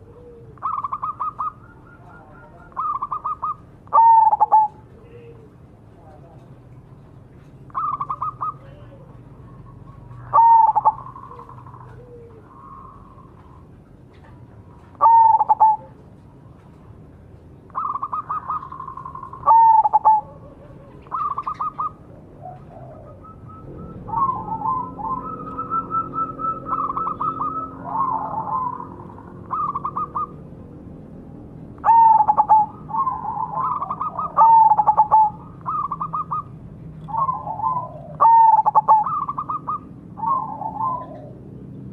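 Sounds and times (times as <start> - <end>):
dove cooing: 0.0 - 5.8, 7.5 - 16.2, 17.6 - 31.0, 31.7 - 41.9
rapid trilled bird notes: 23.2 - 30.4.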